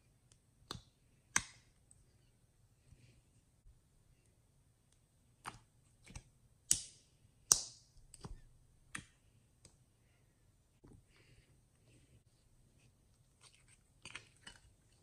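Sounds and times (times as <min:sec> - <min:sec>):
sticky slime clicks and pops: 0:06.7 - 0:06.9, 0:07.5 - 0:08.3.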